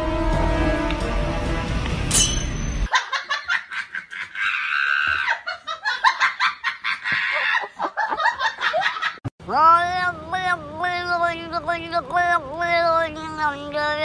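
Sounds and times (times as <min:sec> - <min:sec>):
music: 0:00.0 - 0:02.6
person laughing: 0:02.9 - 0:09.2.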